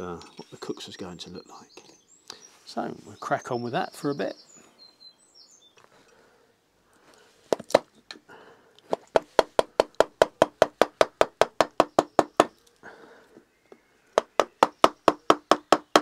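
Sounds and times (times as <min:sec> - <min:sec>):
maul knocking on a gouge: 0:08.9 - 0:12.5, 0:14.2 - 0:16.0.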